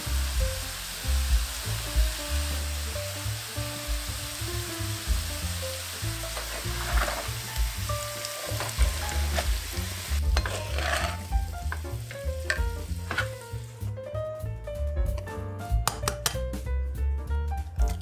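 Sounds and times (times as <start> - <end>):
potatoes sizzling in oil: 0.0 - 13.9
background music: 0.0 - 18.0
spatula scraping pan: 6.4 - 7.4, 10.3 - 11.8, 12.5 - 13.4.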